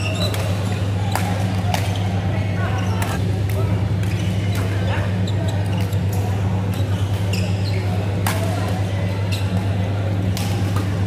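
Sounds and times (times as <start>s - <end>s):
shoes squeaking on court floor: 0.0s - 1.0s, 4.0s - 8.2s, 9.3s - 9.8s
steady low hum: 0.0s - 11.0s.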